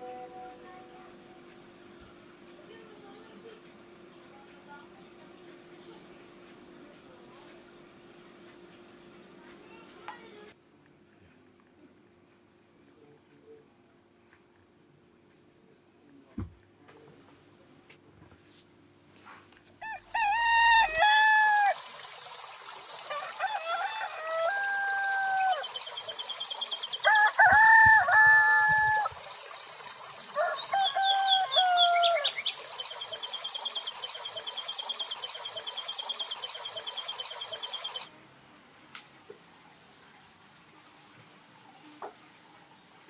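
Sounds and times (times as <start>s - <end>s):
steady high chirping: 0.0s - 10.6s, 25.6s - 27.1s, 29.1s - 38.2s
roosters crowing: 19.8s - 21.8s, 23.1s - 25.7s, 27.0s - 29.2s, 30.3s - 32.5s.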